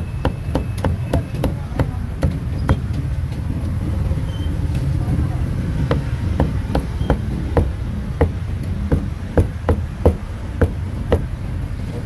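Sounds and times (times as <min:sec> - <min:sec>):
cleaver chopping on wooden block: 0:05.8 - 0:11.3.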